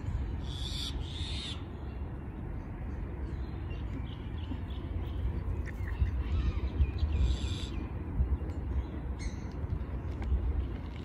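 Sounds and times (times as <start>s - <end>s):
wind rumble on microphone: 2.4s - 11.0s.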